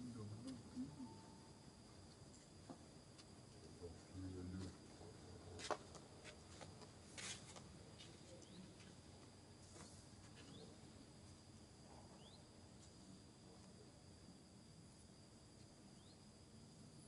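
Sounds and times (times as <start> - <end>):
steady high hum: 0.0 - 17.0.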